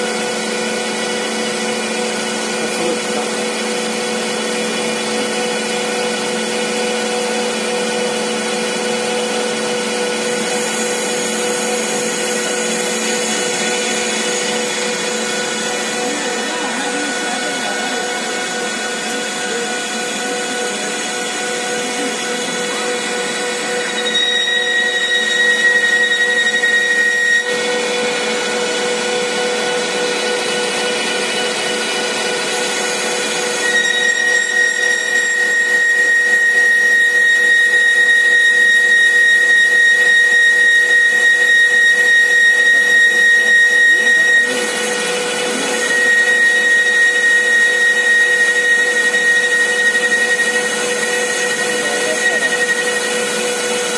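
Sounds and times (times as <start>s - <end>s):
high cutting whine: 9.3s - 53.9s
machine hum: 9.9s - 33.7s.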